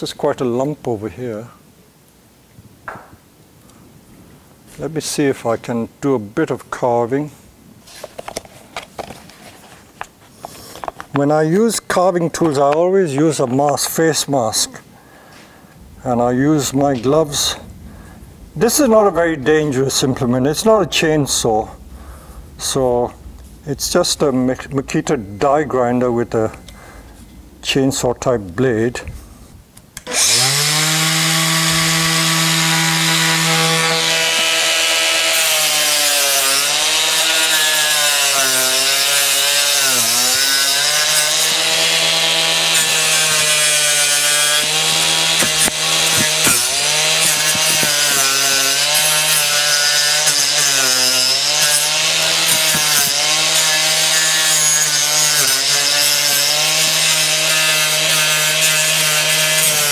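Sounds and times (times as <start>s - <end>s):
angle grinder whining: 30.0s - 59.9s
disc rasping into wood: 30.1s - 59.9s.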